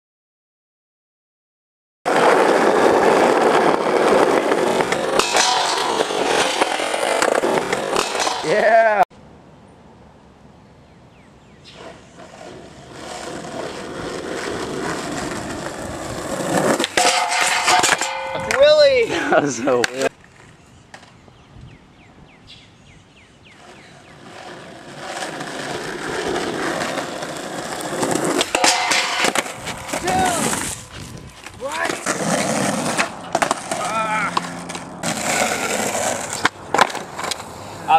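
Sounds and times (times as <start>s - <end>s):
skateboard trucks grinding metal rail: 2.1s - 8.9s, 11.8s - 20.1s, 23.6s - 30.9s, 31.7s - 37.7s
skateboard wheels rolling on asphalt: 2.1s - 9.0s, 10.1s - 37.9s.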